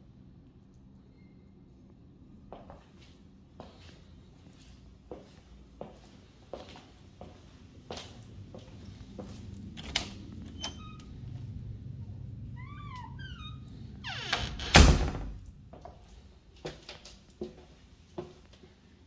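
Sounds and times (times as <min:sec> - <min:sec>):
low steady hum: 0:00.0 - 0:19.0
door swinging shut with thud: 0:14.2 - 0:15.4.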